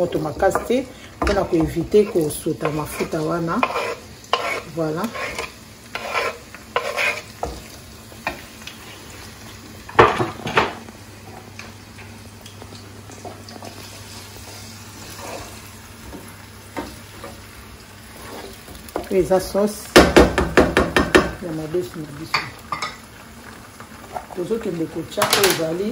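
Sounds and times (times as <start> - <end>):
wooden spatula scraping pan: 0.0 - 7.7, 13.6 - 15.7, 18.1 - 18.7
onion sizzling in oil: 0.0 - 25.9
kitchenware clattering: 9.9 - 10.8, 22.3 - 23.1, 25.2 - 25.8.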